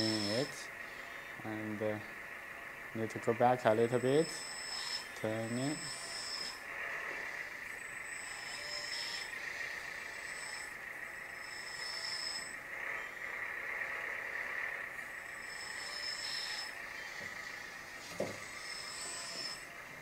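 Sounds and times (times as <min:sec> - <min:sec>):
high thin tone: 0:00.0 - 0:00.6, 0:03.7 - 0:06.6
toy truck motor whine: 0:00.0 - 0:20.0.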